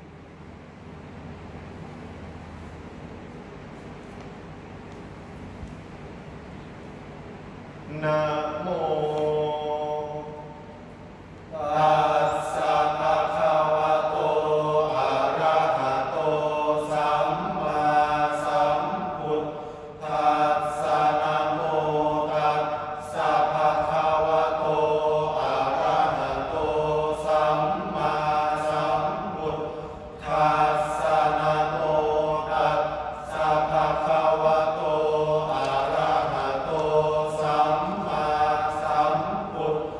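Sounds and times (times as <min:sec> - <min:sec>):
men chanting in unison: 0:07.9 - 0:10.8, 0:11.5 - 0:39.9.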